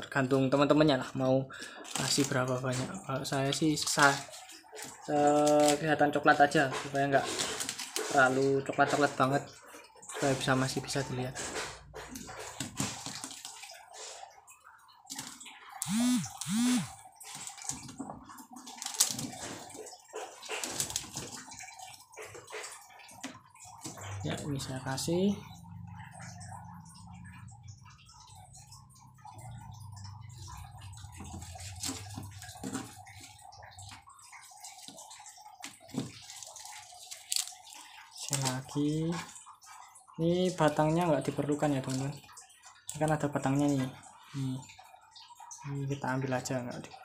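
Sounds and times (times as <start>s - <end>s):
water splashing in a small tank: 0.0s - 47.0s.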